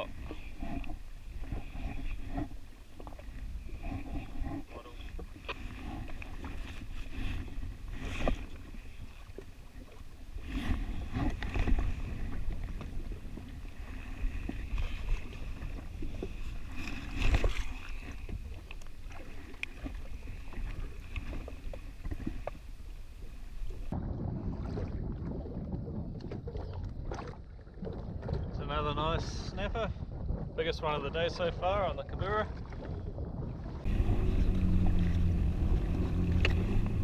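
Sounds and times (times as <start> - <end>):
wind and water rumble: 0.0 - 37.0
jet ski engine idling: 33.9 - 37.0.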